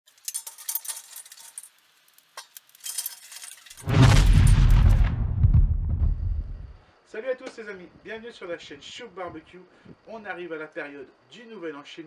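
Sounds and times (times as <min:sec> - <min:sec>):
high clinks and crackles: 0:00.1 - 0:03.8
loud whoosh with deep rumble: 0:03.8 - 0:06.8.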